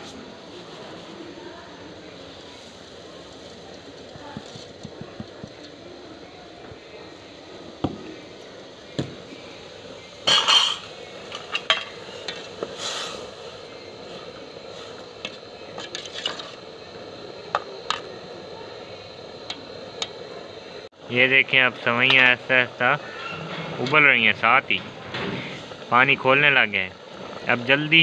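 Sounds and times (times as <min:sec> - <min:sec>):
water boiling: 0:00.0 - 0:28.0
metal ladle scraping metal pot: 0:10.2 - 0:13.2, 0:15.2 - 0:16.6.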